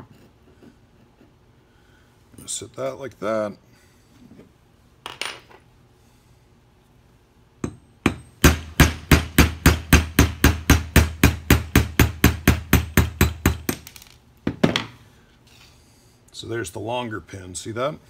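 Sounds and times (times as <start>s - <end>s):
hammer striking metal punch: 7.6s - 13.9s.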